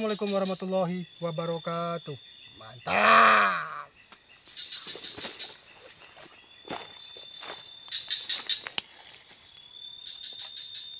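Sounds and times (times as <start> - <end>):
crickets trilling: 0.0 - 10.9
rustling in dry leaves: 4.8 - 10.6.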